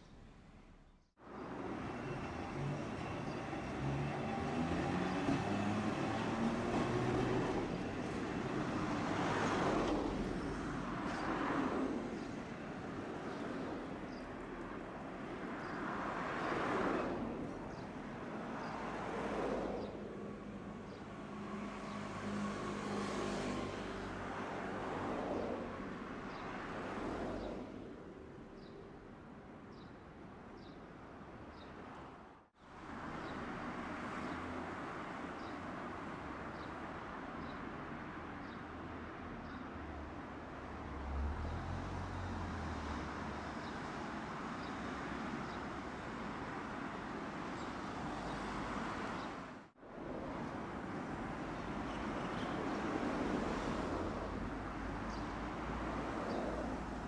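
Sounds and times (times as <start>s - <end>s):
road traffic passing: 0.0s - 57.0s
streetcar rumbling from inside: 1.2s - 14.1s.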